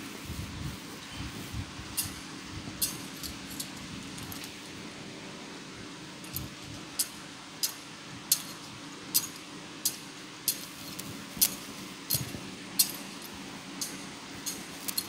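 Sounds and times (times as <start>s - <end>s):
metal censer clinking: 2.8s - 4.5s, 6.2s - 15.0s.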